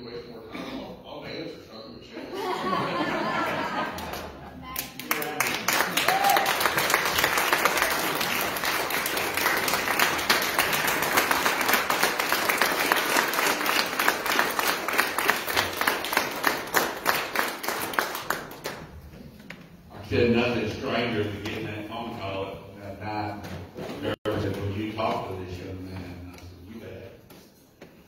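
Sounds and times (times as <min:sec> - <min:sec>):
congregation clapping: 0:03.8 - 0:19.1.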